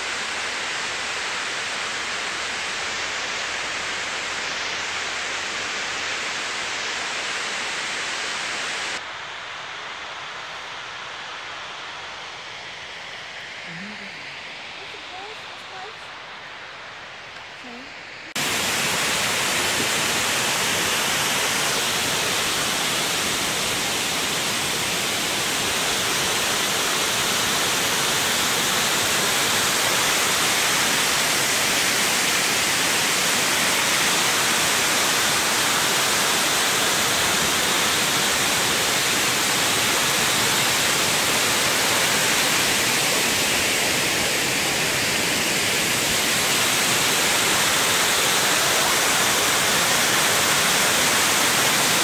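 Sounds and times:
water pouring down dam face: 18.3 - 52.0.

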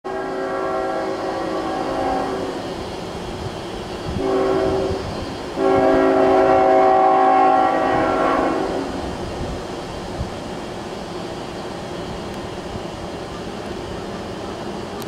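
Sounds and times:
locomotive air horn blasts: 0.1 - 2.6, 4.2 - 5.0, 5.6 - 9.0
low rumble of approaching train: 0.1 - 15.0.

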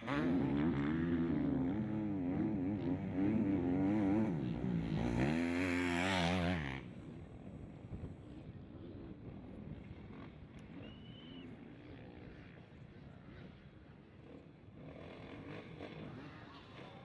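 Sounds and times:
motorcycle engine revving: 0.0 - 6.9, 14.2 - 17.0.

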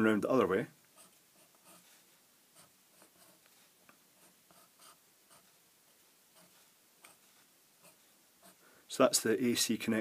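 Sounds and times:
marker scratching on paper: 0.9 - 5.6, 6.3 - 8.6.

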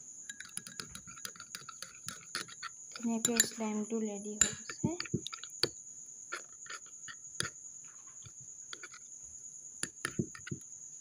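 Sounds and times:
spoon clicking against glass: 0.3 - 3.6, 4.4 - 5.8
slime squelching: 4.4 - 5.7.

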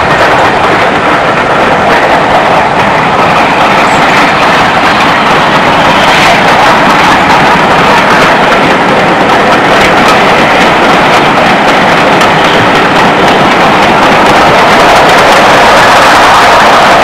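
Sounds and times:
steam train rushing noise: 0.0 - 17.0.

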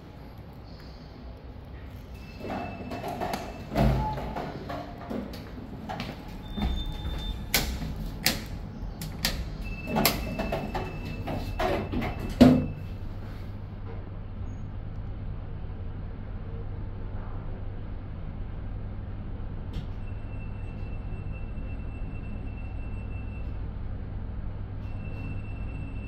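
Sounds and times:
lift moving low hum: 0.0 - 26.0
lift beeps: 2.1 - 4.6, 6.4 - 7.7, 9.5 - 13.0, 19.9 - 23.6, 24.8 - 26.0
sliding doors thumping shut: 2.4 - 12.8.

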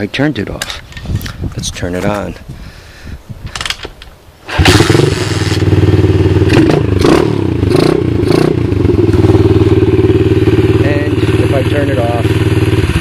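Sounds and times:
motorbike engine idling: 8.6 - 13.0.

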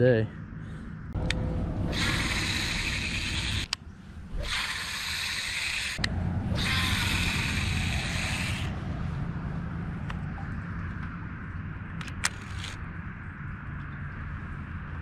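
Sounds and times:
reel clicks: 1.2 - 3.8, 4.4 - 8.7, 12.0 - 12.8
fishing reel gritty whir: 1.2 - 8.8, 12.0 - 12.8.

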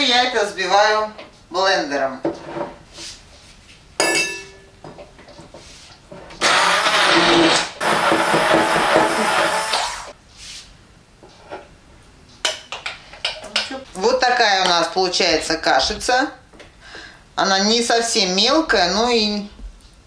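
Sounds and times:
immersion blender running: 6.4 - 10.2.

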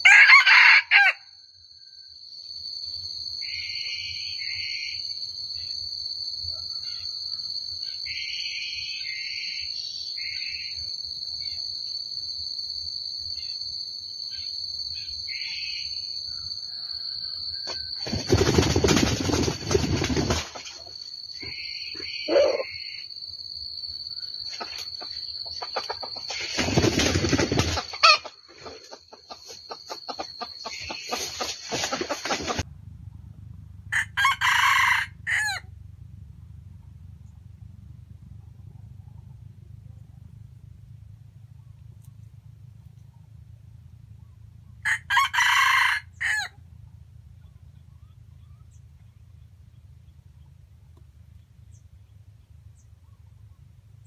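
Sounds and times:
rooster crowing: 0.0 - 1.4, 16.3 - 18.0, 28.0 - 28.3, 33.9 - 35.7, 44.8 - 46.6
higher bird call: 21.4 - 23.1.

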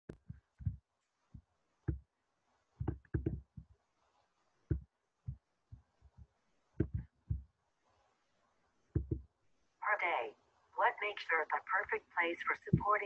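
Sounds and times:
soft low thumps: 0.1 - 2.1, 2.8 - 3.8, 4.7 - 7.6, 8.9 - 9.4, 12.6 - 13.0.

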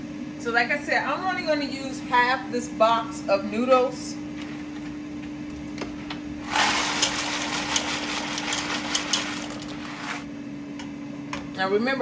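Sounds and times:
dry pasta pouring into pot: 6.5 - 10.2.

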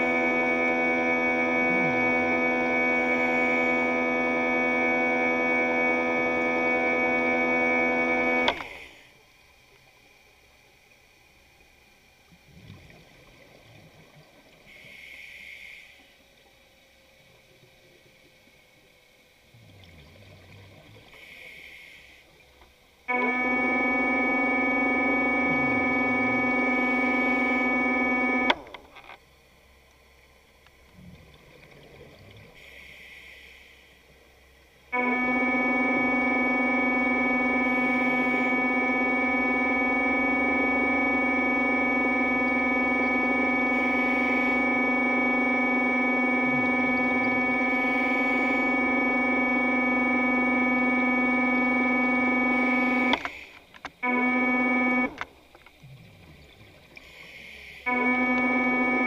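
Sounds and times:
sustained synthesizer chord: 0.0 - 8.5, 23.1 - 28.5, 34.9 - 53.1.

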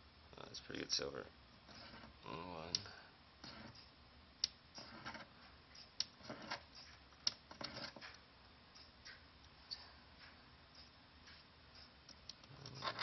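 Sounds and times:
metal scraping on stone: 1.7 - 2.2, 12.5 - 13.0.

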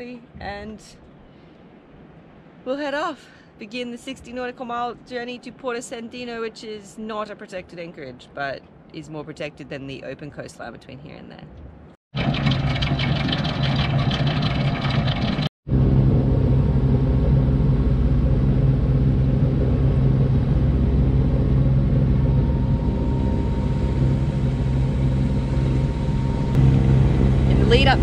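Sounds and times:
boat engine humming: 12.2 - 28.0
rushing noise: 12.2 - 28.0.

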